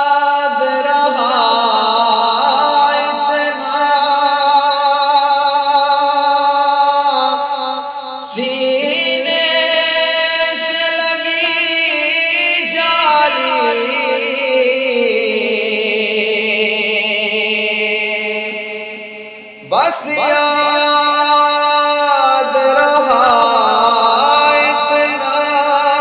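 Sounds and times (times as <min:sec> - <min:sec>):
man chanting unaccompanied: 0:00.0 - 0:26.0.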